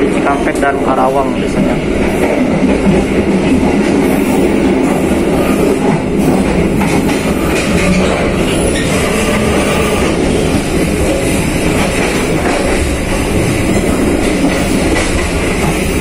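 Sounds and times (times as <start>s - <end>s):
train wheels on rail: 0.0s - 16.0s.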